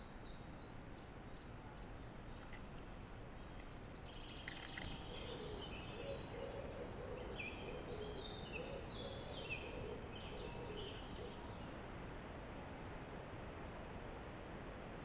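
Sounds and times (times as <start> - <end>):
songbirds singing: 0.0 - 11.8
steady background hiss: 0.0 - 15.0.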